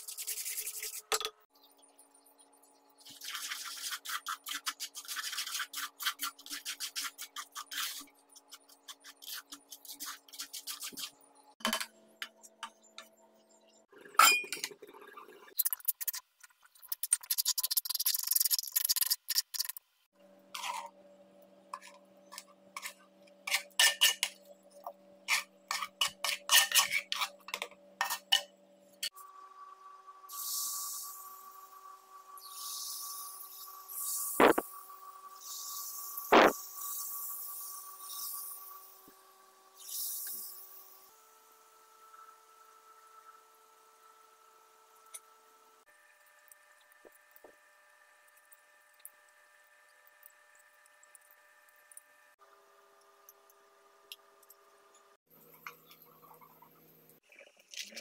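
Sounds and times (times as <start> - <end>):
spoon scraping batter in pot: 3.1 - 11.2, 20.6 - 21.0, 21.7 - 24.4, 25.2 - 28.5.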